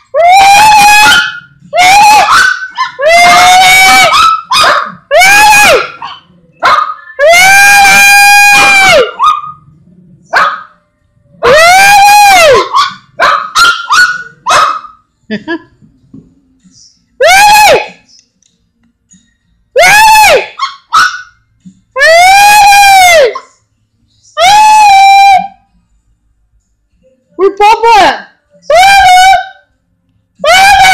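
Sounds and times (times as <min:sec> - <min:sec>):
small dog howling barks: 0:00.2 - 0:09.5, 0:11.4 - 0:14.8, 0:30.4 - 0:30.9
small dog yipping: 0:12.6 - 0:14.8, 0:20.6 - 0:21.3.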